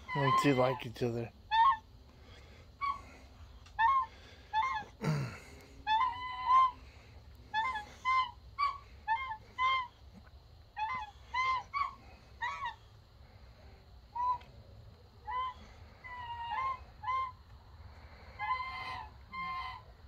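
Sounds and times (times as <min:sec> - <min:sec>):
goose honking softly: 0:18.0 - 0:20.0.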